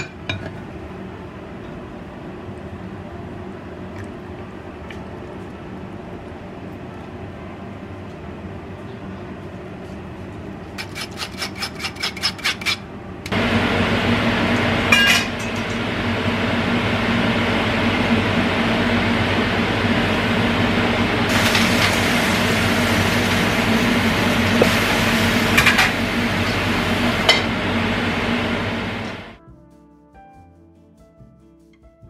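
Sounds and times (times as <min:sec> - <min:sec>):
range hood fan humming: 0:00.0 - 0:29.4
scraping strokes: 0:10.8 - 0:12.8
hiss: 0:21.3 - 0:27.3
stir-frying in a pan: 0:21.3 - 0:29.0.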